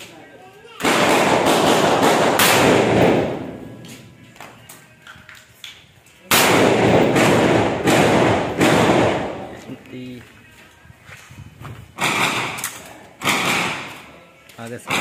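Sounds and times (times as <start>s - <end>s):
rifle shots echoing: 0.8s - 3.8s, 6.3s - 9.6s, 12.0s - 14.1s.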